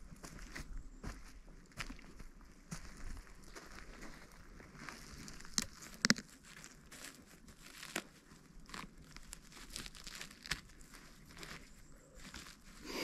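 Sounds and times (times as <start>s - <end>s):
rustling of dry leaves and twigs: 0.0s - 13.0s
twigs snapping: 5.2s - 11.6s.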